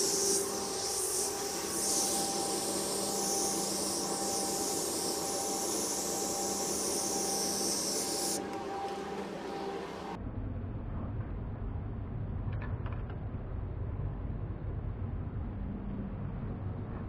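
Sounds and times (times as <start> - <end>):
compressed-air blower hissing: 0.0 - 10.2
steady hum: 0.0 - 10.8.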